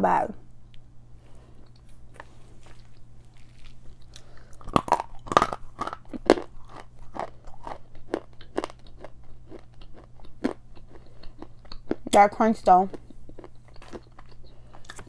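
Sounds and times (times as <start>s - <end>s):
chalk crunching while chewed: 1.6s - 12.2s, 12.9s - 15.0s.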